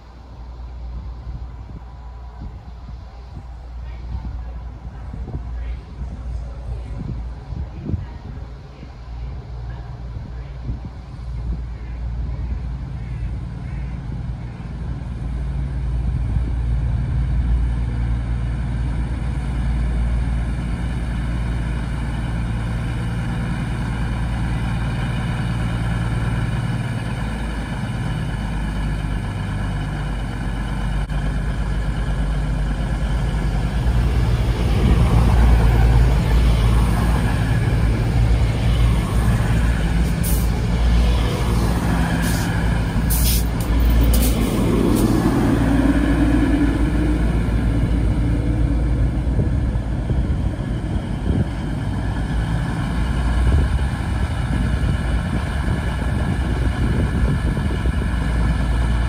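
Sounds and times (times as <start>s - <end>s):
diesel train engines humming: 0.0s - 59.0s
train braking noise: 41.4s - 47.6s.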